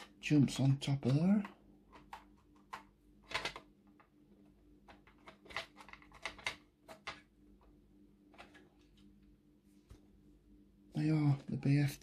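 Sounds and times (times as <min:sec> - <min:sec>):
plastic parts clicking and rattling: 0:00.0 - 0:04.1, 0:04.8 - 0:07.3.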